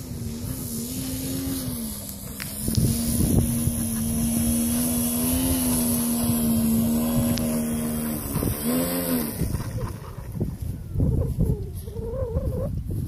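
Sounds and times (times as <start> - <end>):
model plane motor whining: 0.0 - 9.9.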